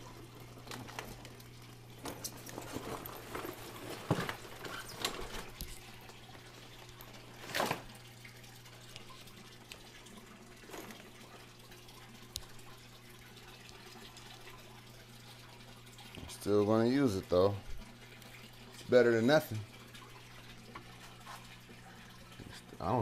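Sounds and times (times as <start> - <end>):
tap water splashing into tank: 19.7 - 22.7.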